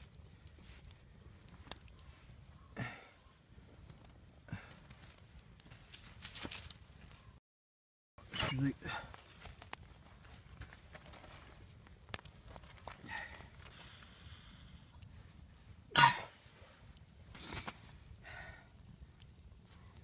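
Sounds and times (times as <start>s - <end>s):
campfire crackling: 0.0s - 7.4s, 8.2s - 20.0s
soft breathy sound: 2.6s - 3.4s, 17.4s - 18.9s
person coughing: 15.9s - 16.3s.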